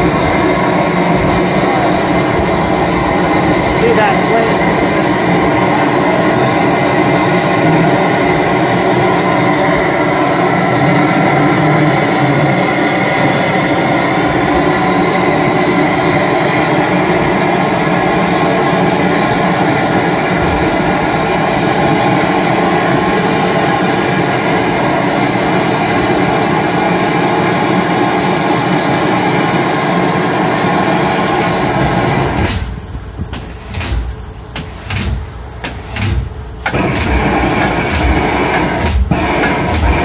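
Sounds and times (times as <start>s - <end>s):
diesel engine running loudly: 0.0s - 40.0s.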